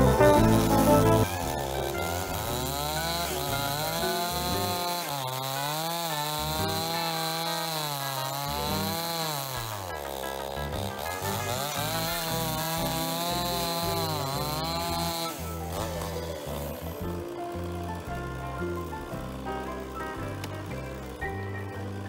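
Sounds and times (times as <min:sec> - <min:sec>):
chainsaw cutting wood: 0:00.0 - 0:22.0.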